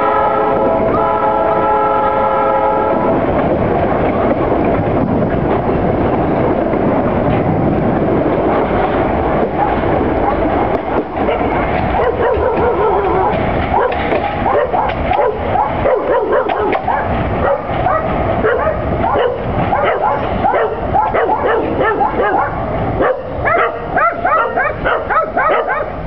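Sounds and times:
freight train wagons rumbling: 0.0s - 26.0s
dogs barking and yelping: 9.5s - 10.5s, 11.2s - 26.0s.

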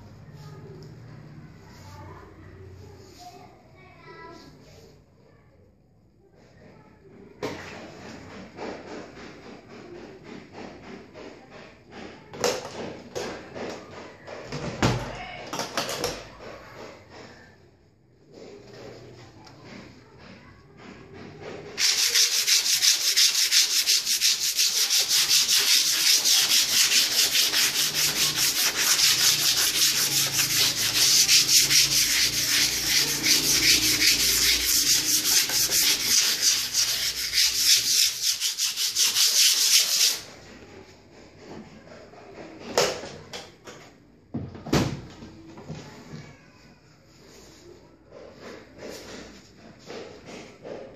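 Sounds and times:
hand sanding metal: 21.8s - 40.3s.

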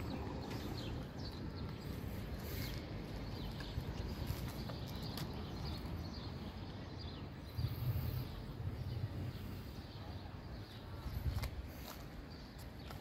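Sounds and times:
wind buffeting microphone: 10.5s - 12.4s.

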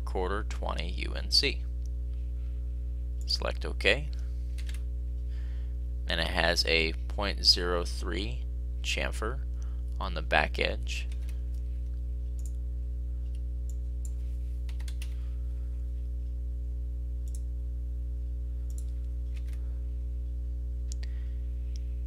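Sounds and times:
low hum with overtones: 0.0s - 22.0s
computer mouse clicks: 4.6s - 4.8s, 12.4s - 12.6s, 17.2s - 17.4s, 18.7s - 19.6s.

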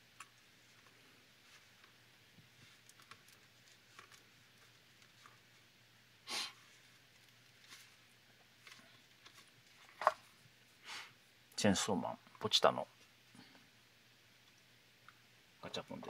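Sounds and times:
short breathy burst of noise: 6.2s - 6.6s, 10.8s - 11.2s.

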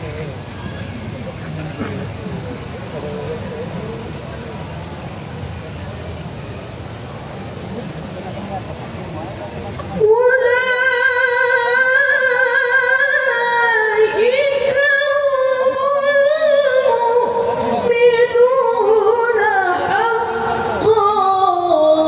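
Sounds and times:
woman reciting melodically: 10.0s - 22.0s.

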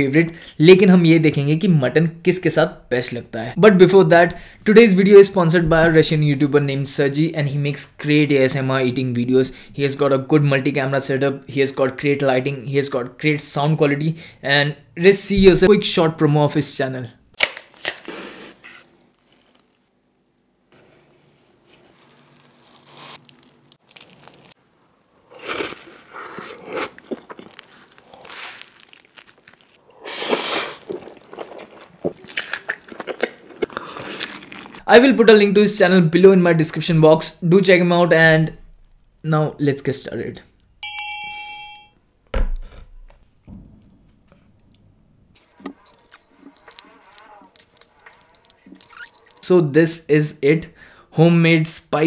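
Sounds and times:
crunchy food chewing: 21.7s - 34.8s
plate thump on wooden table: 42.3s - 44.4s.

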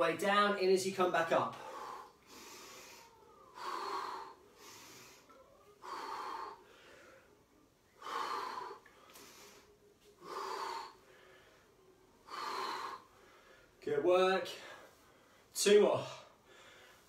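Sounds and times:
man breathing hard: 1.5s - 13.8s, 16.2s - 17.0s.

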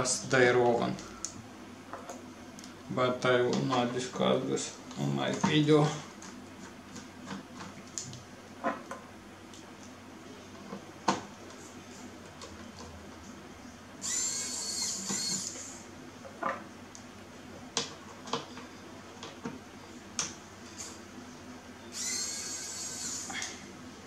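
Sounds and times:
electric screwdriver whirring: 14.0s - 15.8s, 21.9s - 23.3s.

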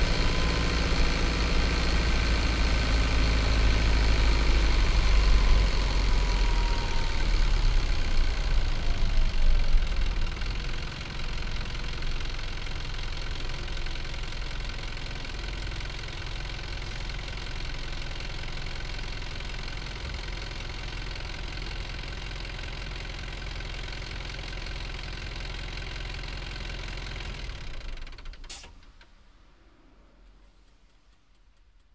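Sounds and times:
diesel engine idling: 0.0s - 28.6s
engine stopping click: 27.6s - 31.9s.

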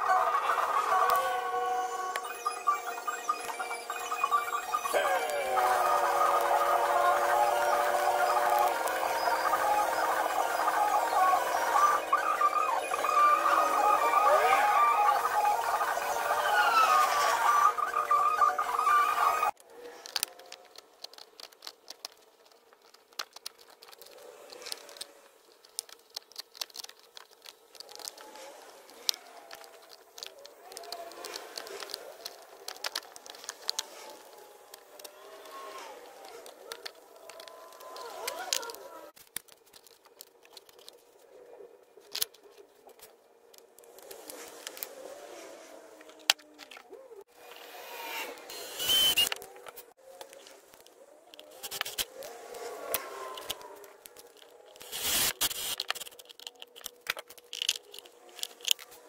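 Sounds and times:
rustling and scraping of plastic parts: 0.0s - 59.0s
plastic clicks taps and crinkling: 19.6s - 41.0s, 52.9s - 54.9s, 55.7s - 59.0s.

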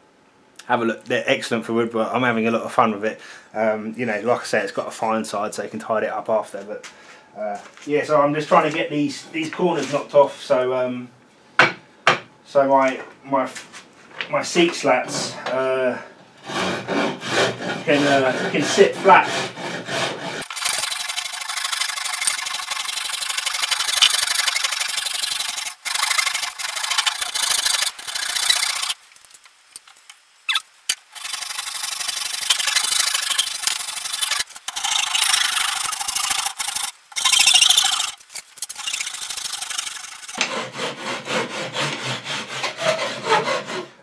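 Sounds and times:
rasp filing wood: 16.4s - 29.0s, 31.2s - 38.1s, 38.8s - 44.0s.

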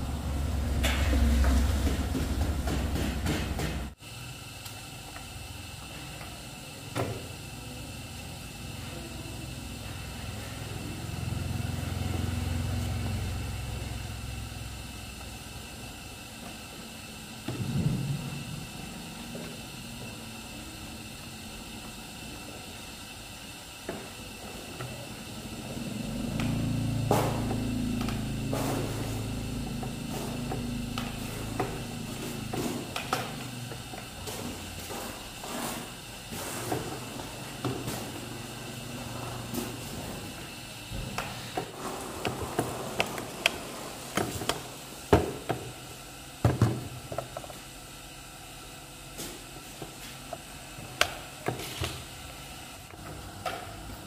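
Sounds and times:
low engine-like hum: 0.0s - 3.0s, 7.6s - 15.4s, 25.0s - 34.0s.

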